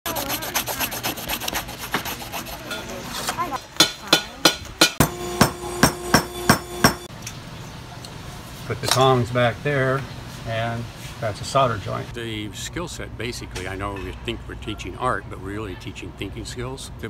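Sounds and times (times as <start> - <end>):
hand sanding on sandpaper: 0.1 - 2.8
hammer knocking on punch: 3.8 - 7.1
mallet striking metal punch: 3.8 - 7.1.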